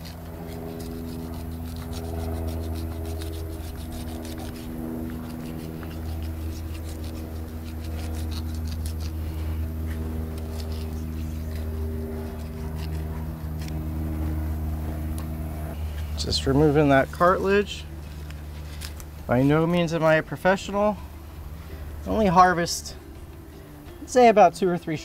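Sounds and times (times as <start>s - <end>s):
knife sawing through flesh: 0.0s - 14.4s
steady low hum: 0.0s - 25.0s.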